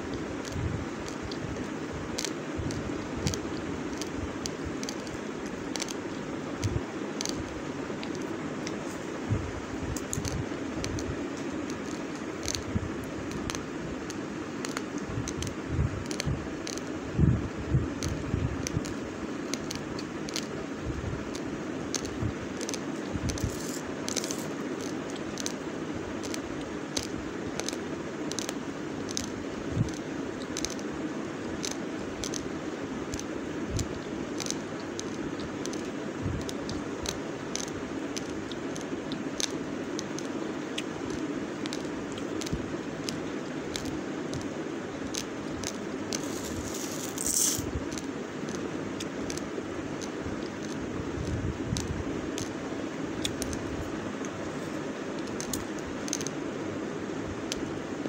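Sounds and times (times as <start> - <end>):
low background hum: 0.0 - 58.0
raw rice crunched and chewed: 21.3 - 25.6, 45.1 - 48.6.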